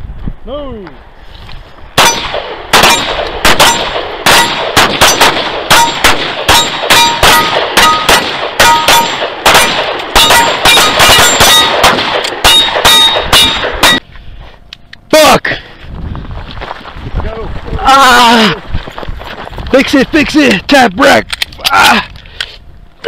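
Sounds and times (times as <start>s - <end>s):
bullets ringing on steel: 2.0s - 14.0s
pistol shots: 2.0s - 14.0s.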